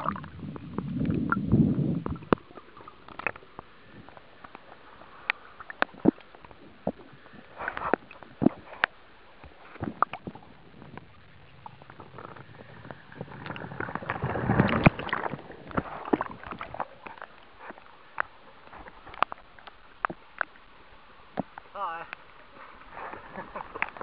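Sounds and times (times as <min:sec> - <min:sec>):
water splashing and gurgling: 0:00.0 - 0:24.0
sharp clicks and pops: 0:02.0 - 0:04.6.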